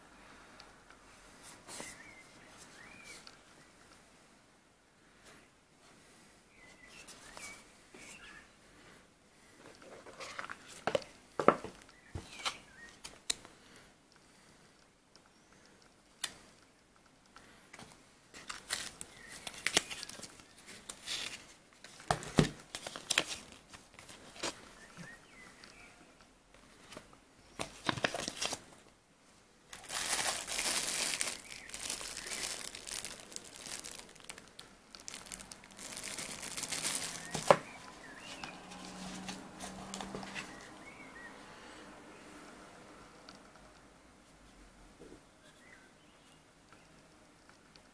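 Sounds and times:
paper and plastic crinkling: 0:18.3 - 0:24.7, 0:27.6 - 0:28.7, 0:29.7 - 0:40.6.

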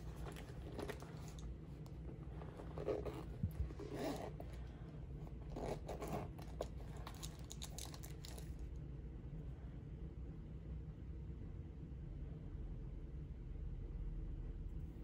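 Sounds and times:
zipper pulled open: 0:00.0 - 0:01.4, 0:02.3 - 0:04.7, 0:05.3 - 0:07.3.

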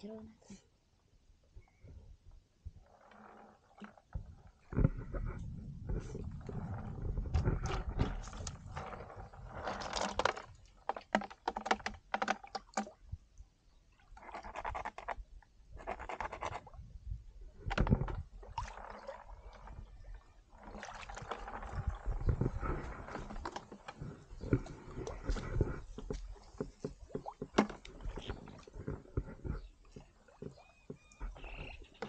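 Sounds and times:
muddy water splashing: 0:03.3 - 0:13.1, 0:17.6 - 0:32.0
sharp clicks and knocks: 0:09.7 - 0:13.0, 0:25.3 - 0:31.4.

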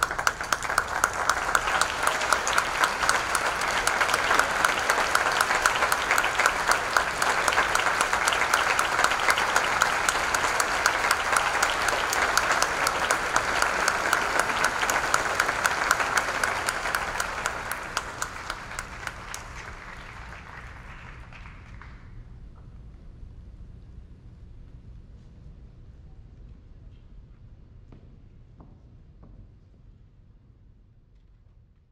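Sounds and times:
audience applauding: 0:00.0 - 0:22.1.

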